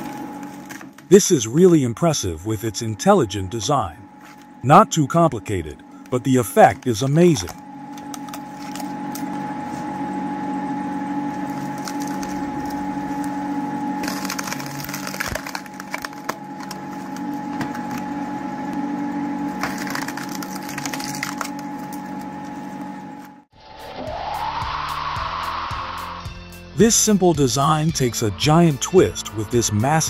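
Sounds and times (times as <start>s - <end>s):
log splitter motor hum: 0.0s - 23.5s
wood cracking and splintering: 14.0s - 17.2s, 19.6s - 21.6s.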